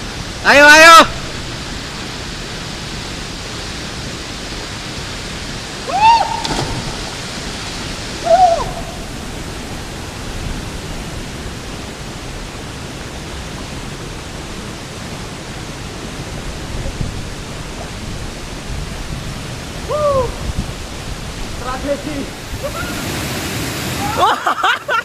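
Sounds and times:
waterfall rushing: 0:00.0 - 0:25.0
person yelling: 0:00.5 - 0:01.2, 0:05.9 - 0:06.5, 0:08.2 - 0:09.0, 0:19.9 - 0:20.4
splash into water: 0:06.0 - 0:09.0.

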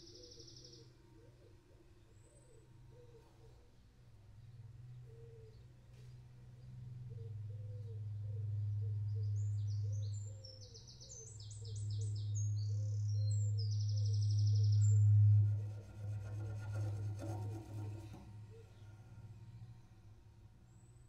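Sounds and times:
cello long low note: 0:14.0 - 0:20.4.

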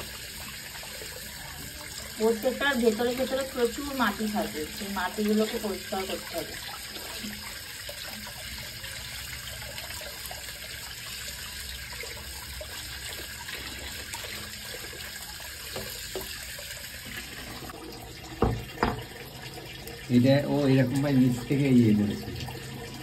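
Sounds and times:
tap water splashing into bowl: 0:02.8 - 0:20.0.

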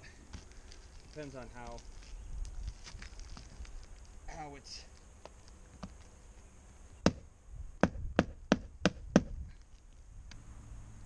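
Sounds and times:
sharp knocks: 0:07.0 - 0:07.2, 0:07.8 - 0:09.3.

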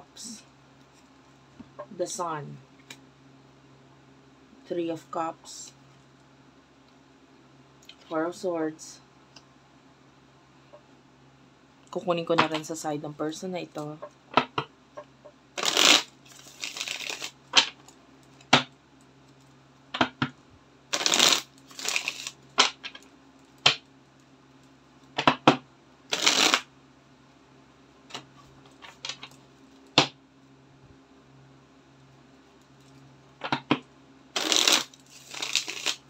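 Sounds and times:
cards shuffling and rustling: 0:15.6 - 0:18.6, 0:21.0 - 0:23.0, 0:34.4 - 0:36.0.

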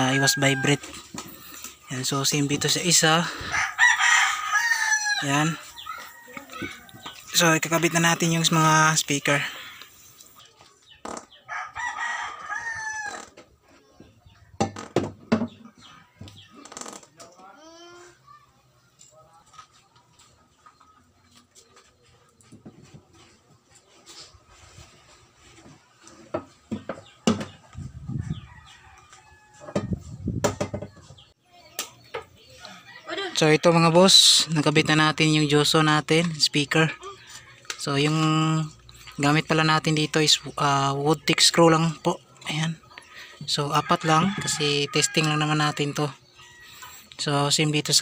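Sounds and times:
rooster crowing: 0:00.0 - 0:01.0, 0:03.2 - 0:07.4, 0:11.5 - 0:13.3, 0:43.8 - 0:46.8
faint chicken clucking: 0:15.5 - 0:33.4.

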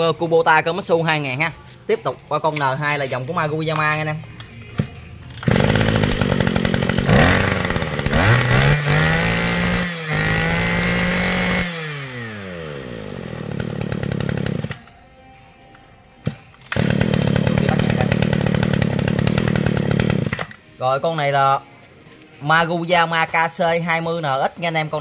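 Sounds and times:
brush cutter engine revving: 0:05.4 - 0:14.8, 0:16.2 - 0:20.5.

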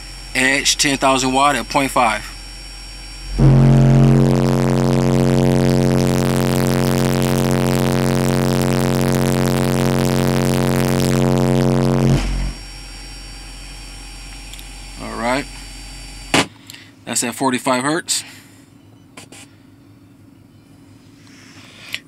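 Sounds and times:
low test tone through subwoofers: 0:00.0 - 0:15.6.

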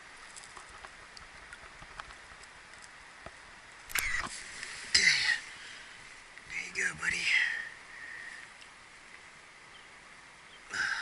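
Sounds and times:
small clicks: 0:00.3 - 0:04.3.

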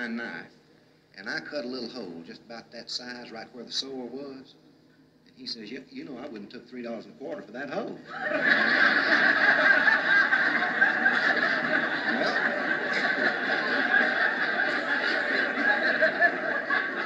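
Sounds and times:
audience laughter from speaker: 0:08.1 - 0:17.0.

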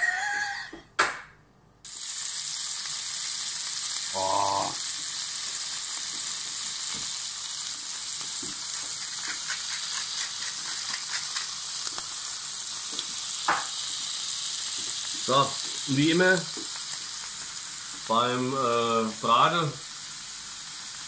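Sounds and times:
fat spattering crackles: 0:01.9 - 0:21.0
steaks sizzling in frying pan: 0:01.9 - 0:21.0.

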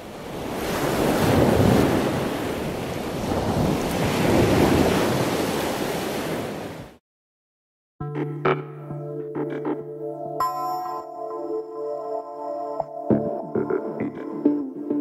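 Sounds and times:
ocean waves: 0:00.0 - 0:07.0.

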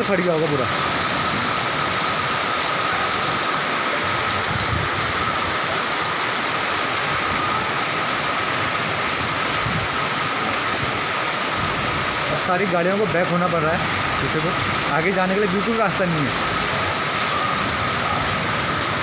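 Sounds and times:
floodwater rushing over road: 0:00.0 - 0:19.0
heavy rain: 0:00.0 - 0:19.0.

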